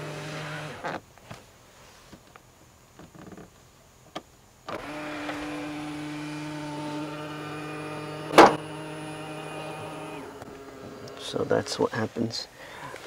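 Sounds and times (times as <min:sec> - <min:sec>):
power seat motor humming: 0:00.0 - 0:01.0, 0:04.7 - 0:11.8.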